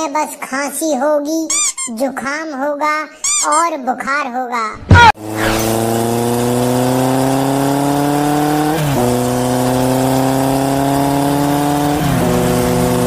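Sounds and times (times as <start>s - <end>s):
vehicle engine accelerating: 5.2s - 13.0s.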